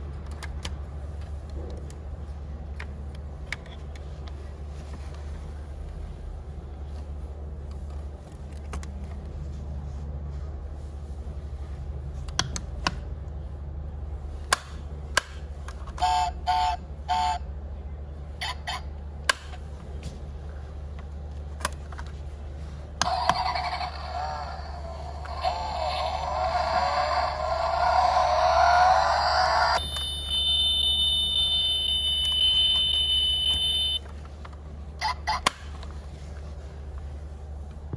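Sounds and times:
steady low hum: 0:00.0 - 0:37.9
toy engine rev effect: 0:23.0 - 0:34.0
two-tone electronic beeps: 0:29.8 - 0:34.0.

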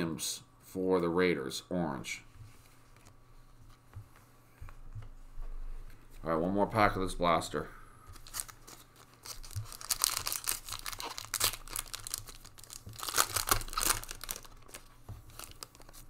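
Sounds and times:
foil pack crinkling: 0:08.2 - 0:16.0.

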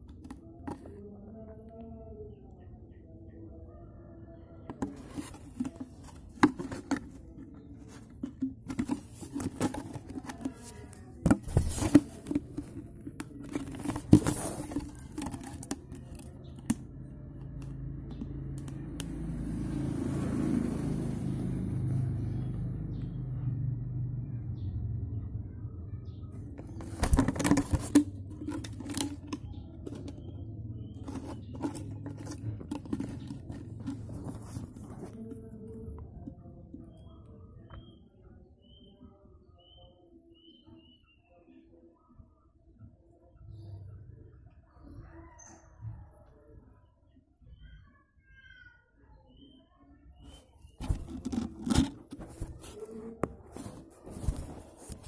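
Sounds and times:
plastic bottle handling noise: 0:00.0 - 0:01.0, 0:04.7 - 0:18.7, 0:26.4 - 0:35.5, 0:50.3 - 0:55.0.

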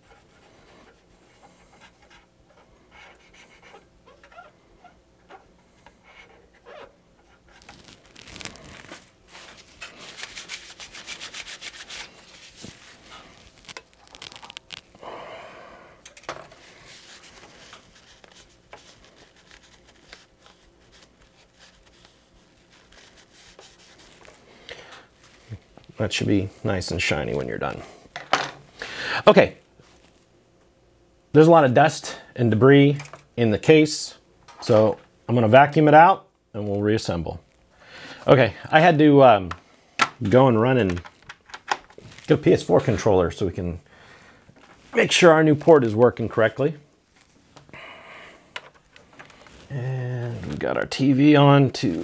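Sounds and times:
cotton swab scrubbing metal: 0:00.0 - 0:14.8.

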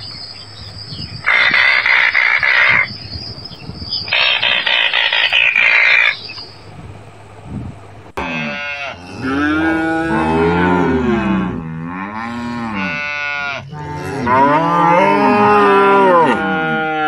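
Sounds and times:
cattle mooing: 0:08.2 - 0:17.0.

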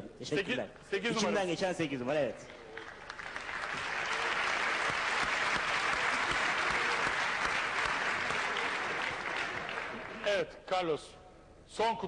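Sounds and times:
audience applauding: 0:02.4 - 0:10.4.

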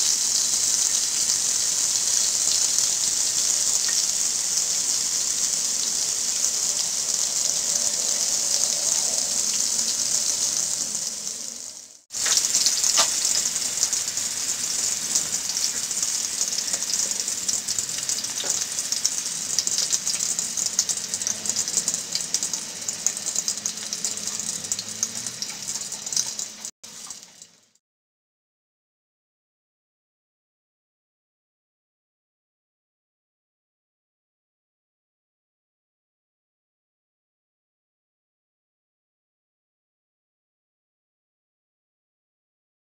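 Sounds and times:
fish deep-frying in oil: 0:00.0 - 0:27.8.

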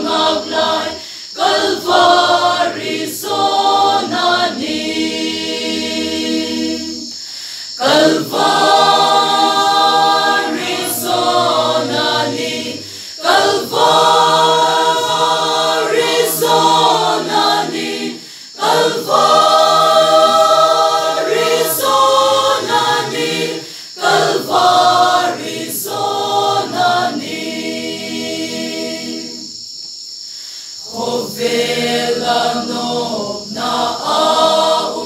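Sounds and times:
mixed choir singing unaccompanied: 0:00.0 - 0:29.7, 0:30.8 - 0:35.0.

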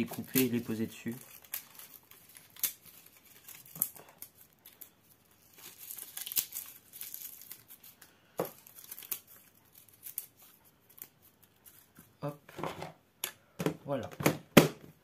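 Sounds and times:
dry leaves crumpled by hand: 0:00.0 - 0:04.8, 0:05.4 - 0:07.9.

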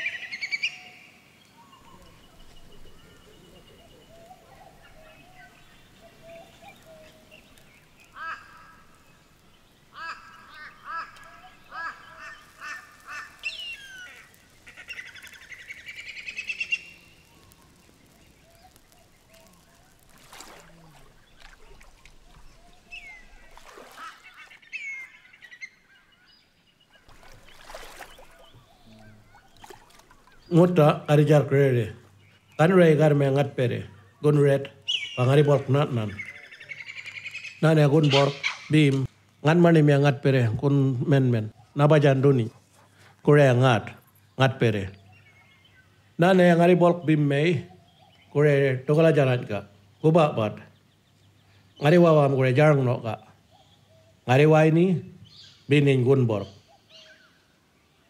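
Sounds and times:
harsh bird call: 0:00.0 - 0:26.0, 0:32.6 - 0:39.1
birds chirping faintly: 0:00.0 - 0:58.0
creek water splashing: 0:01.1 - 0:32.6.

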